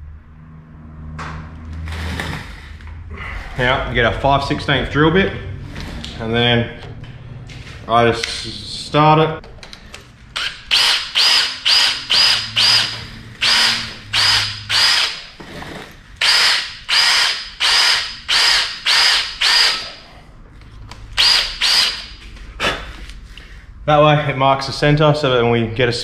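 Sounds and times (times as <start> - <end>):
electric drill whining in pulses: 10.4 - 15.4, 16.2 - 20.0, 21.2 - 22.1.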